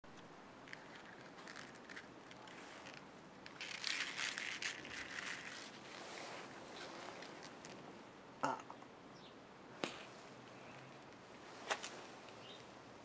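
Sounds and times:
crackling: 0.0s - 8.0s
rustling and crinkling: 0.1s - 8.0s, 9.8s - 12.8s.

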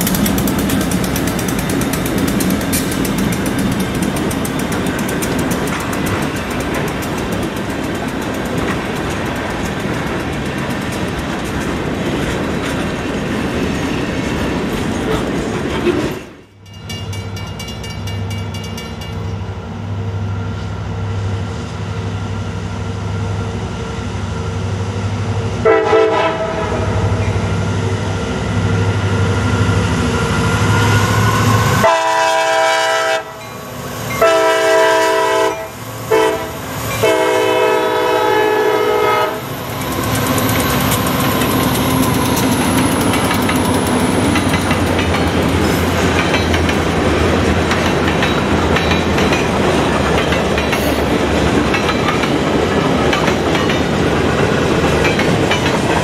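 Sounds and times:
freight cars rail clatter: 0.0s - 19.4s, 39.6s - 56.0s
diesel locomotives droning: 0.0s - 56.0s
locomotive air horn blasts: 25.6s - 27.0s, 31.8s - 33.5s, 34.2s - 39.5s.

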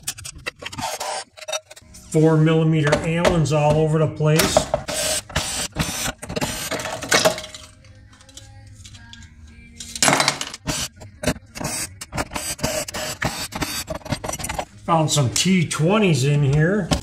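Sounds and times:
cordless drill-driver: 4.9s - 6.8s.

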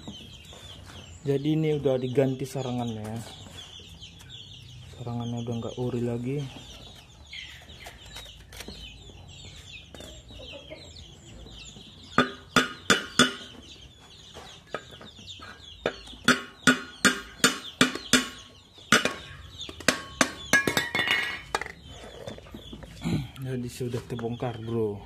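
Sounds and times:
faint chirping calls: 0.0s - 25.0s
metal strikes on hollow steel: 12.1s - 13.5s, 15.8s - 21.7s.

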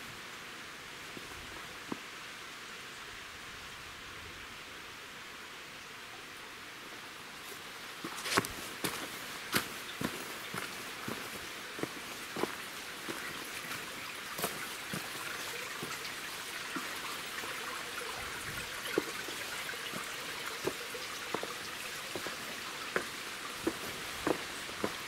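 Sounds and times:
stream babbling over rocks: 7.2s - 25.0s
footsteps on loose stones: 8.0s - 15.2s, 18.9s - 25.0s.

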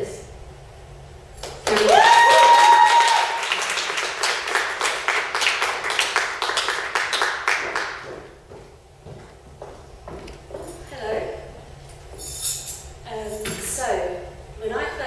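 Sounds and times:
audience applauding: 1.4s - 8.3s
person whooping: 1.7s - 3.8s.

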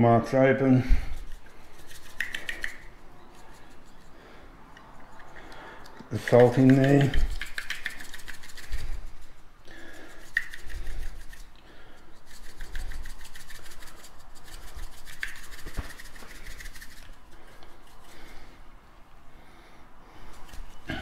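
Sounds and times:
salt shaken onto pork rind: 1.0s - 3.9s, 6.2s - 9.3s, 10.0s - 11.6s, 12.2s - 17.2s
fingers rubbing skin: 1.1s - 4.2s, 4.8s - 18.4s, 20.2s - 21.0s.

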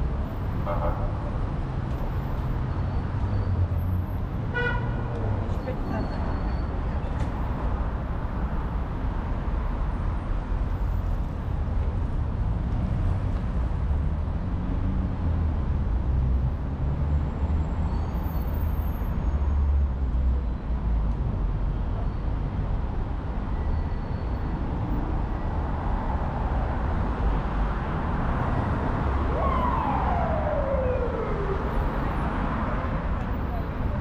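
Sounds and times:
traffic rumbling past: 25.8s - 34.0s.

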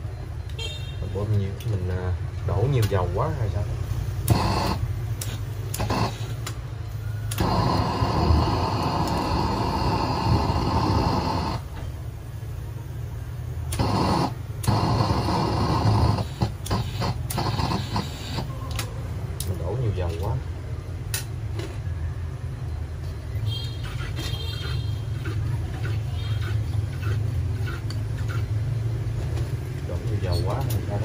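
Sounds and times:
burner flame hissing: 2.8s - 18.5s.

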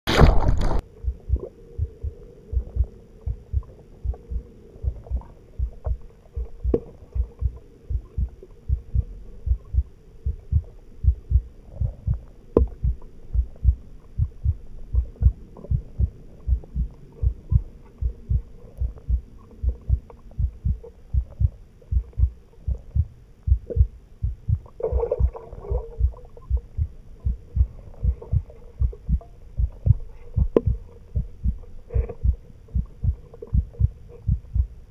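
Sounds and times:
faint low hum: 0.1s - 34.9s
heartbeat thumping: 0.6s - 34.8s.

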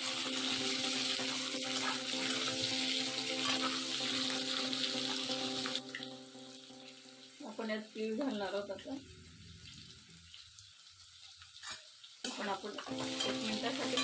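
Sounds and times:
vegetables sizzling in hot oil: 0.0s - 14.0s
spatula scraping pan: 3.3s - 4.3s.

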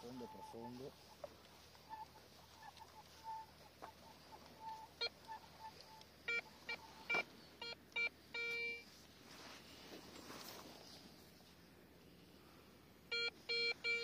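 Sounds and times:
metal detector beeps: 0.0s - 0.9s, 4.6s - 8.9s, 13.1s - 14.0s
metal detector faint chirps: 1.8s - 8.9s, 13.1s - 14.0s.

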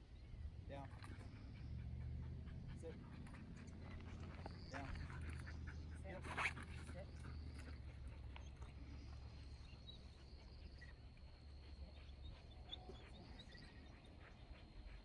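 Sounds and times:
faint bird chirps: 8.4s - 15.0s.

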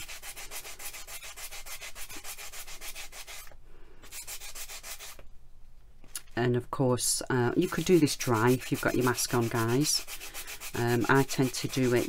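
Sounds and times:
wet sponge pad sanding: 0.0s - 3.5s, 4.1s - 5.2s, 7.4s - 12.0s.

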